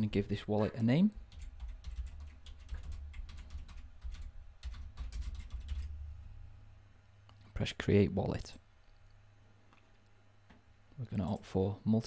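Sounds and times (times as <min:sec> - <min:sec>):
computer keyboard typing: 0:01.2 - 0:06.0.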